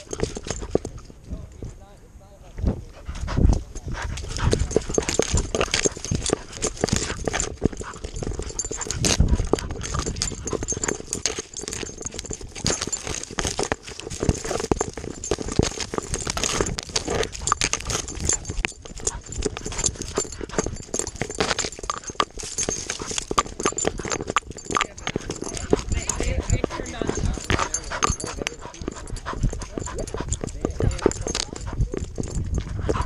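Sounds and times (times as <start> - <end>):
camera knocking: 4.1 - 33.0.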